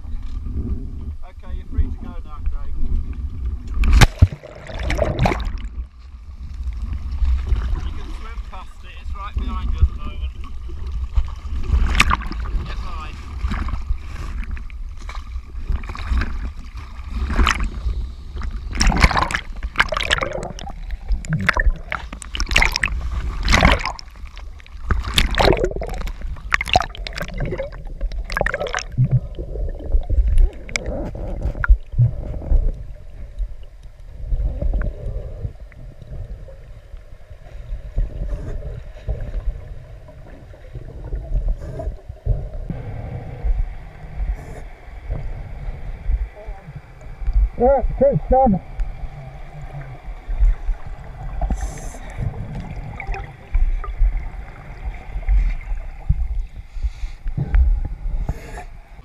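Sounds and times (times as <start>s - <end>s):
underwater gurgling: 0.0s - 59.0s
sea water splashing: 2.8s - 59.0s
heavy low rumble: 40.8s - 55.3s.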